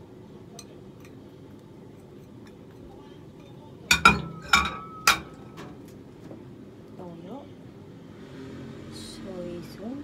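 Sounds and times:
glass kitchenware clinking: 0:02.2 - 0:05.6.

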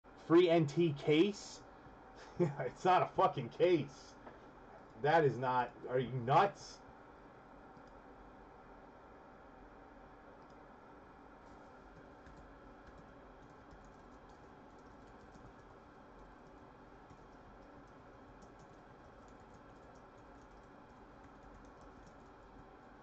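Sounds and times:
typing on computer keyboard: 0:11.6 - 0:22.7.

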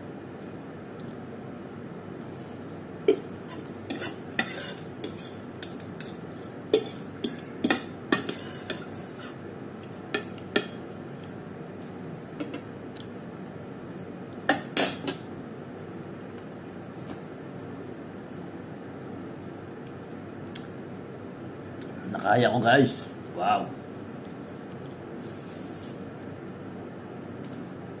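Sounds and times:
cutlery scraping and clinking on plate: 0:03.1 - 0:06.2, 0:06.8 - 0:09.4.

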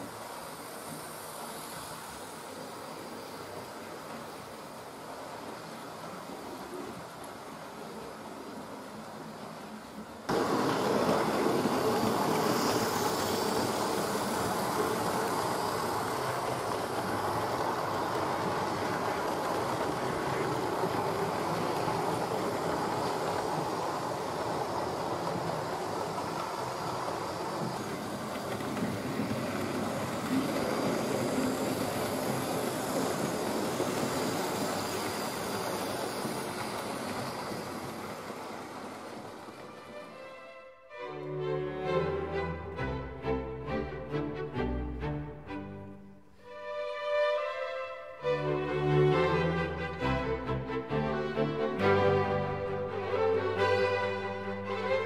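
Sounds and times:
wheels rolling on rails: 0:00.0 - 0:40.2
model train motor whirring: 0:10.3 - 0:39.7.

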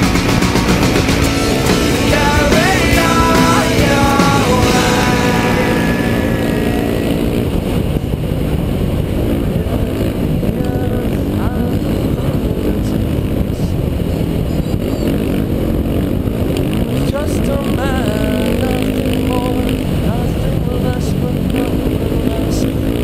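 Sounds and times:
music track: 0:00.0 - 0:07.4
dirt bike engine running hard: 0:00.0 - 0:23.0.

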